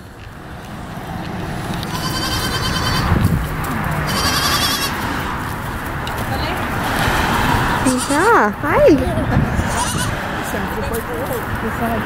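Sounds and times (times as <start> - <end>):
goat kids bleating faintly: 1.9 - 3.1, 4.0 - 5.0, 7.8 - 8.3, 9.6 - 10.1.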